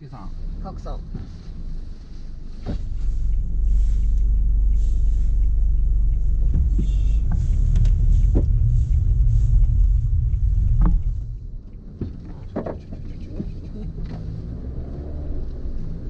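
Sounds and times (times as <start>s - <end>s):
engine and road noise in cabin: 0.0s - 16.0s.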